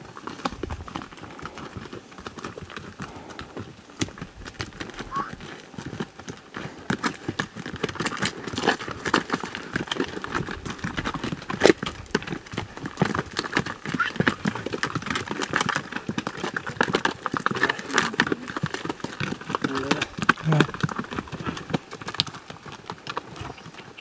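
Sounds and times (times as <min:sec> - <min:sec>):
mule hooves clopping on rocky trail: 0:00.0 - 0:24.0.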